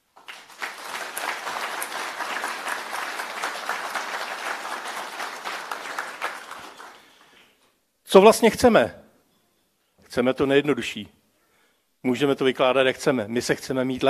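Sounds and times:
audience applause: 0.1s - 7.3s.

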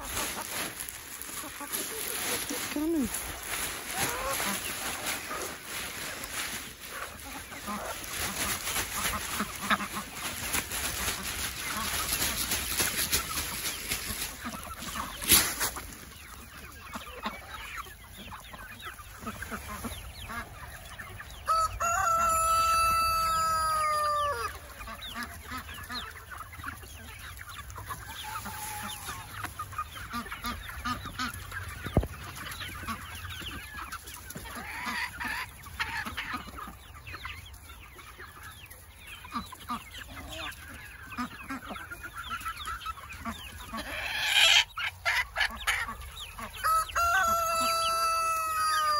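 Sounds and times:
chickens clucking: 0.0s - 48.9s
rooster crowing: 21.5s - 24.6s, 46.6s - 48.9s.

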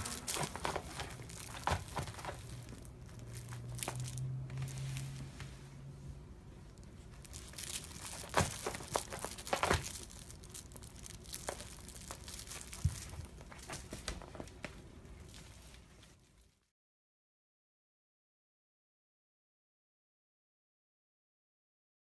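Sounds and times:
cat scratching a plush toy: 0.0s - 6.0s, 6.6s - 16.1s.

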